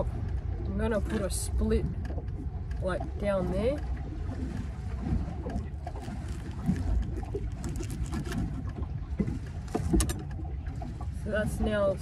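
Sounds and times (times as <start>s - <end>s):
wind and water rumble: 0.0s - 12.0s.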